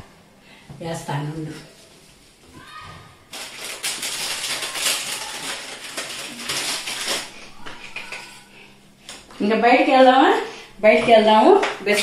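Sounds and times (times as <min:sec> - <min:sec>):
plastic packet crinkling: 0:03.3 - 0:08.4.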